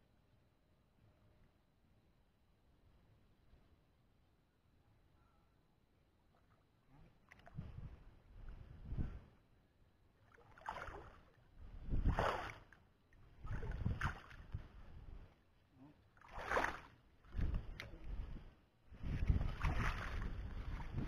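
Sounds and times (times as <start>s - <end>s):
wading through grass and water: 6.2s - 9.5s, 10.1s - 21.0s
wind rumble on microphone: 7.4s - 9.4s, 11.6s - 12.5s, 13.3s - 15.3s, 16.4s - 21.0s.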